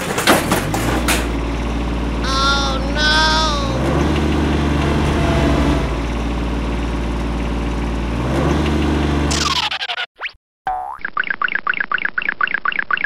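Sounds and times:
tractor engine idling: 0.0s - 8.2s
squeaky cartoon voice: 2.2s - 3.8s, 9.3s - 10.1s.

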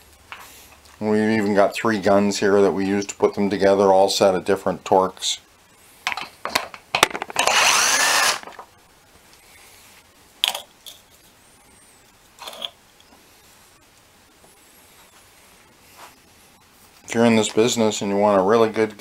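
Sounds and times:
air gun running: 7.4s - 8.5s.

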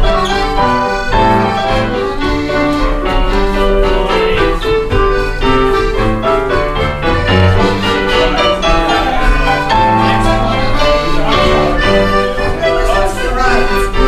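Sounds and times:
country dance band playing: 0.0s - 14.0s
piano accordion: 0.0s - 14.0s.

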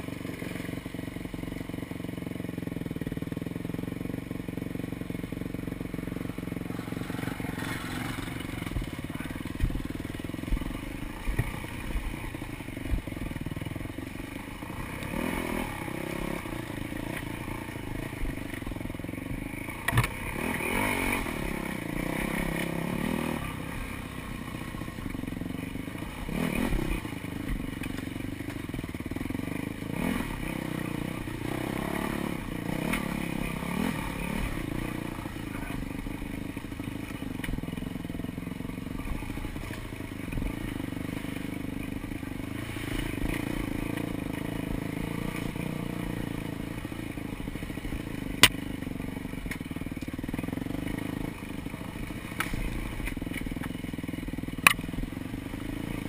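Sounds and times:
dirt bike engine revving: 0.0s - 56.0s
knocks and clatter over rough ground: 6.3s - 13.7s, 19.5s - 23.4s, 26.0s - 29.2s, 49.4s - 55.1s.

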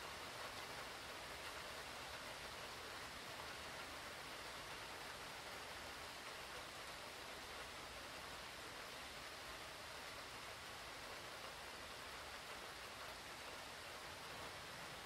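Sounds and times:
steady heavy rain hiss: 0.0s - 15.0s.

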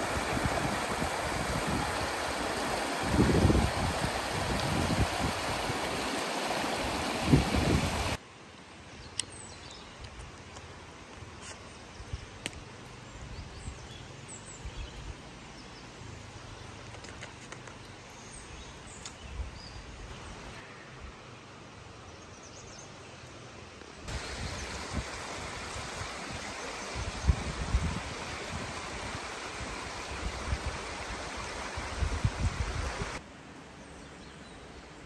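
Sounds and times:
mountain stream rushing: 0.0s - 8.2s, 24.1s - 33.3s.

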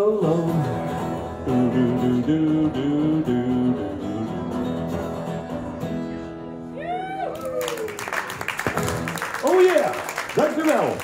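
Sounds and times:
acoustic guitar playing: 0.0s - 7.3s, 8.3s - 9.2s.

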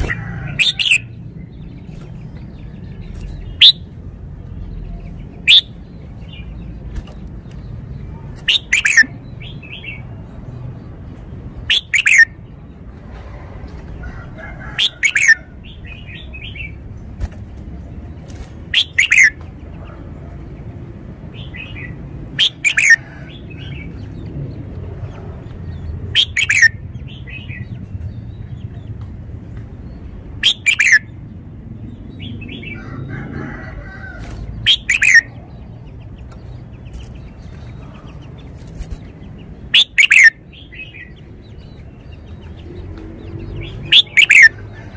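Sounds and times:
bird singing whistled phrases: 5.5s - 5.7s, 30.4s - 31.0s, 39.8s - 40.3s.

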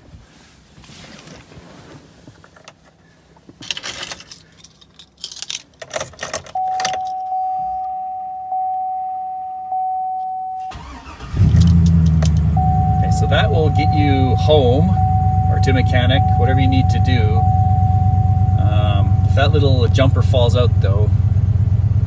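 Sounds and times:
keys jangling: 3.6s - 7.3s, 11.5s - 12.4s
dashboard warning chime: 6.5s - 11.3s, 12.4s - 21.0s.

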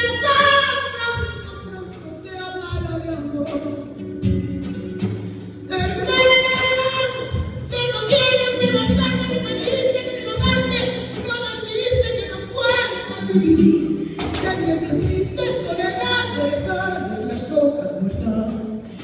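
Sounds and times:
acoustic guitar plucking: 0.0s - 19.0s.

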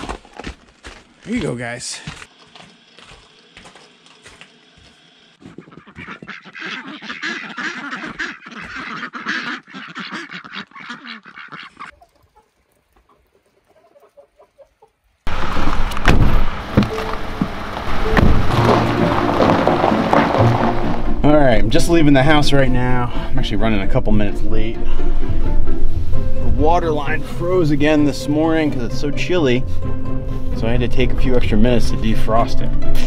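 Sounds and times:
ducks quacking: 5.4s - 15.0s.

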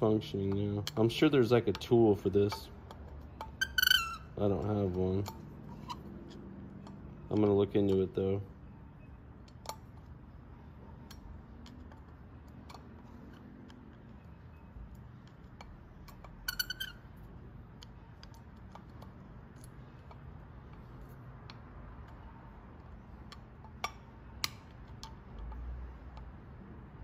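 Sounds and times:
small metal clicks and taps: 0.2s - 8.3s, 9.4s - 10.2s, 10.9s - 26.4s.

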